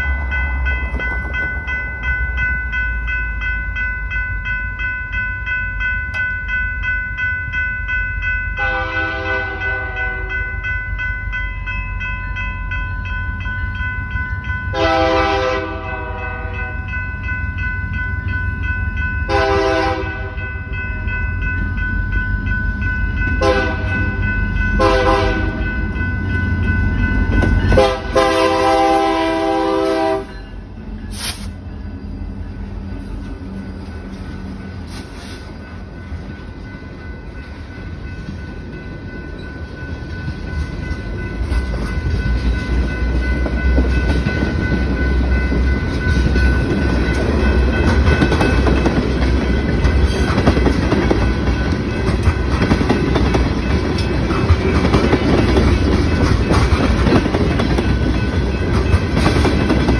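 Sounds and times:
locomotive engine rumbling: 0:00.0 - 0:59.9
locomotive horn blasts: 0:08.6 - 0:10.4, 0:14.7 - 0:16.6, 0:19.3 - 0:20.4, 0:23.4 - 0:24.0, 0:24.8 - 0:25.6, 0:27.7 - 0:30.4
train wheels clattering on rail: 0:33.0 - 0:59.9.

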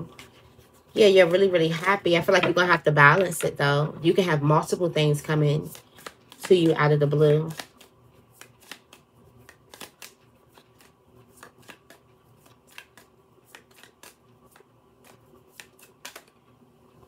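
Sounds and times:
cards shuffling by hand: 0:05.6 - 0:16.6.

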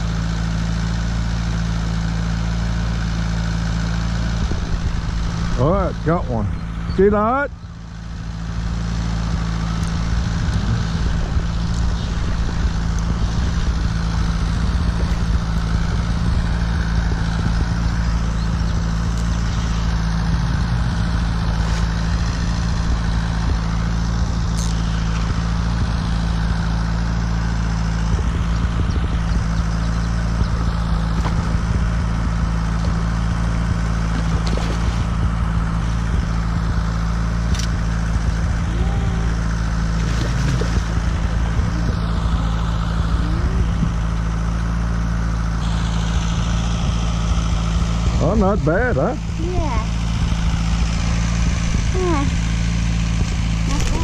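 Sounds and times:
aerator motor hum: 0:00.0 - 0:54.0.

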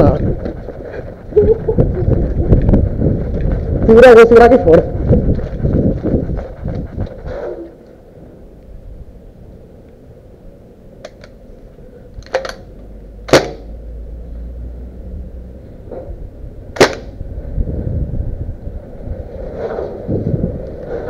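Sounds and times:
wind rumble on microphone: 0:00.0 - 0:10.6, 0:13.8 - 0:21.0
airsoft gun shots: 0:13.3 - 0:13.7, 0:16.8 - 0:17.2.

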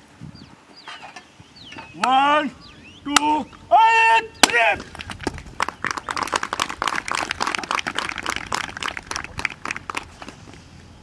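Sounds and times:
man shouting: 0:03.2 - 0:04.9
crowd clapping: 0:04.9 - 0:10.5.

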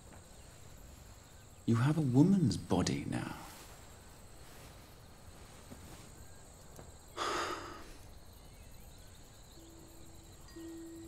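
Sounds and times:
person sharp breath: 0:07.2 - 0:08.1.

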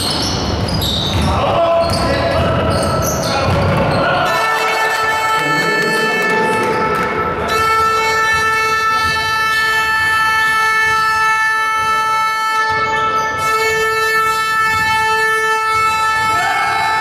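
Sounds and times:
loud steady horn tone: 0:04.2 - 0:17.0.

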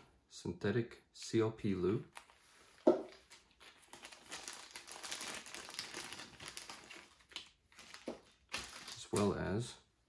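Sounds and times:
plastic bags crinkling: 0:02.1 - 0:09.5.

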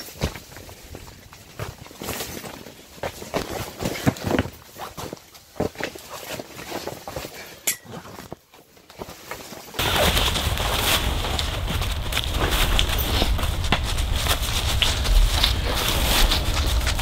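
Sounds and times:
sharp clink: 0:07.7 - 0:07.9
tent fabric rustling: 0:08.9 - 0:17.0.

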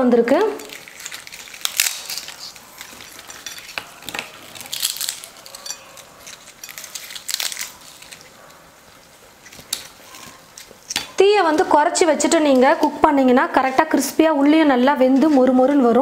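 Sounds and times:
fried pastry crackling and snapping: 0:00.3 - 0:11.7.

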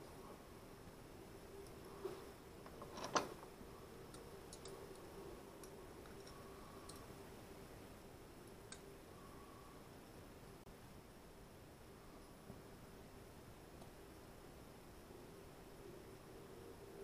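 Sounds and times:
small hard parts clicking: 0:02.6 - 0:03.5.

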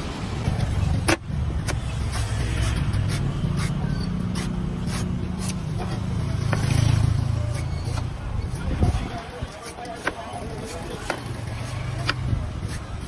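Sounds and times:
cleaver chopping coconut husk: 0:06.4 - 0:13.0.

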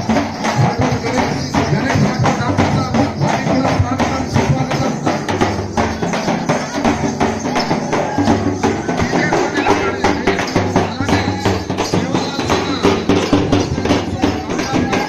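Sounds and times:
jingling percussion: 0:00.0 - 0:15.0
large drums beaten: 0:00.0 - 0:15.0.

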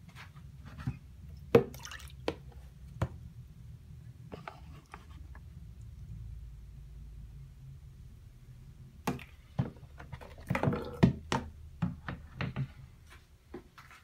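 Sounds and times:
plastic and metal clattering in sink: 0:09.1 - 0:12.7.

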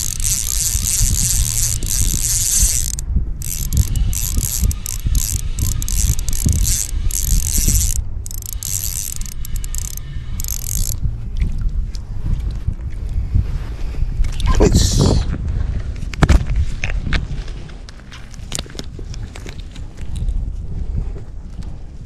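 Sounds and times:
fishing reel ratcheting: 0:00.0 - 0:11.0.

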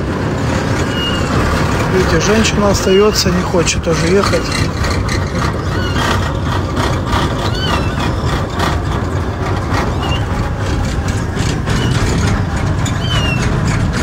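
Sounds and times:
vehicle engine running: 0:00.0 - 0:14.0
short high squeaks: 0:00.8 - 0:01.4, 0:02.3 - 0:06.3, 0:07.3 - 0:08.6, 0:09.9 - 0:10.4, 0:11.6 - 0:14.0.

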